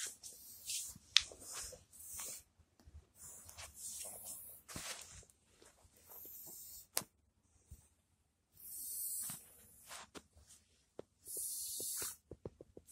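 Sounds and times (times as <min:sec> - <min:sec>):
fabric rustling: 0:04.6 - 0:05.9.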